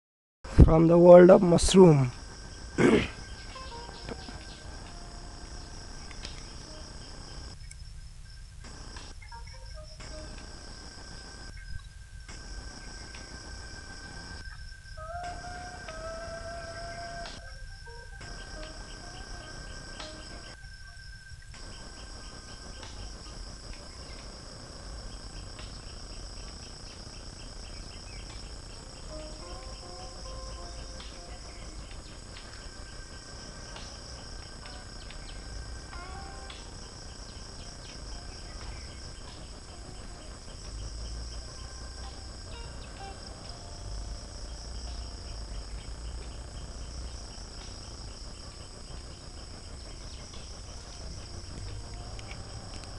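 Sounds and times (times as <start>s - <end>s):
insects chirping with ticking pulse: 0.5s - 52.9s
low rumble: 21.6s - 52.9s.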